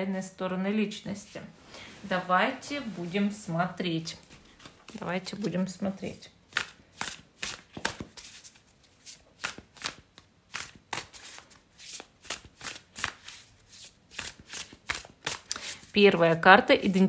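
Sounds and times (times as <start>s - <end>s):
cards shuffled by hand: 6.5s - 15.9s.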